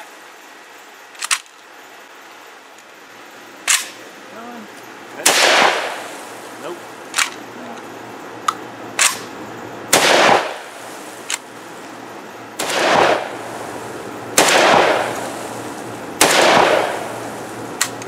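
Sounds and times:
shotgun blasts: 0:05.2 - 0:06.3, 0:09.0 - 0:11.4, 0:12.6 - 0:17.4.

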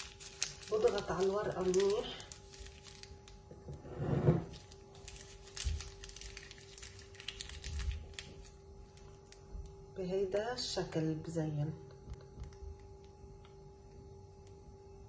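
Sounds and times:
parchment paper crinkling: 0:00.0 - 0:03.4, 0:04.5 - 0:09.5
faint steady hum: 0:00.0 - 0:15.0.

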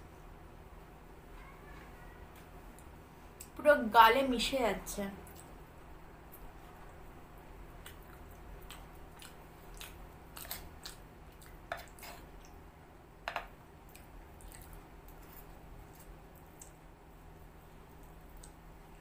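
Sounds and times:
low steady hum: 0:00.0 - 0:19.0
person chewing: 0:07.7 - 0:12.6, 0:13.8 - 0:16.8.

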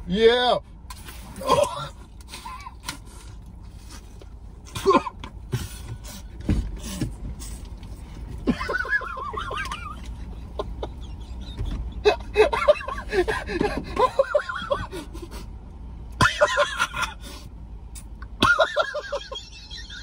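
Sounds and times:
men laughing hard: 0:08.4 - 0:15.4, 0:16.2 - 0:17.2, 0:18.4 - 0:20.0.

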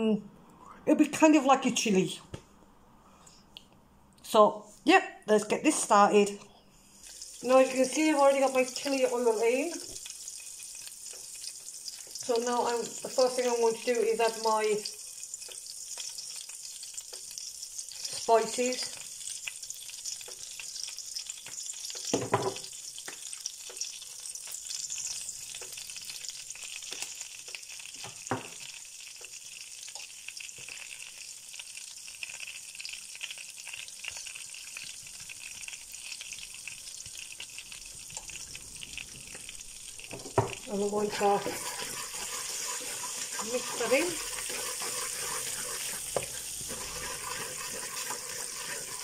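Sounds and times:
spices sizzling in oil: 0:04.7 - 0:49.0
knock: 0:22.2 - 0:22.6.

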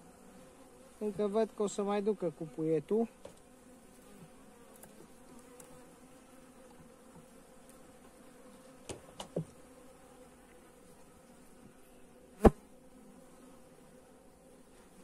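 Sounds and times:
honey bees humming: 0:00.0 - 0:15.0.

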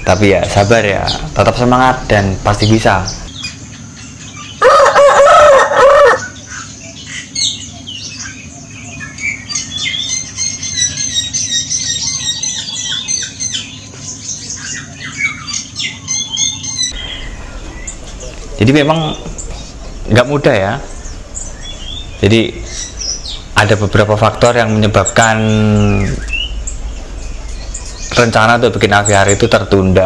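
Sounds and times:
small birds chirping: 0:00.0 - 0:30.0
steady low hum: 0:00.0 - 0:30.0
rooster crowing: 0:04.6 - 0:06.4.

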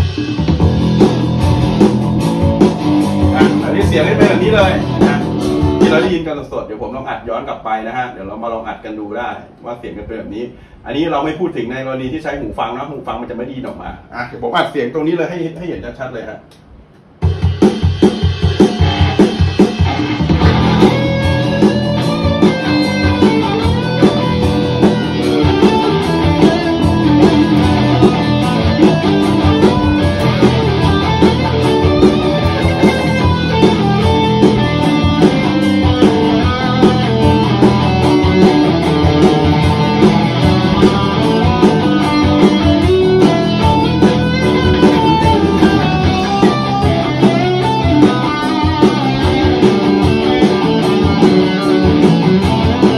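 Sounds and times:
electric guitar: 0:00.0 - 0:06.1, 0:18.1 - 0:52.9
backing track drums: 0:00.0 - 0:06.3, 0:16.5 - 0:52.9.

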